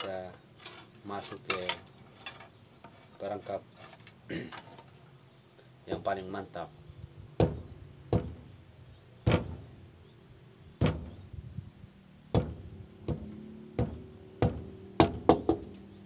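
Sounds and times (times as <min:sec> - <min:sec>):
machete chopping bamboo: 0:07.4 - 0:08.5, 0:09.2 - 0:09.7, 0:12.3 - 0:15.9.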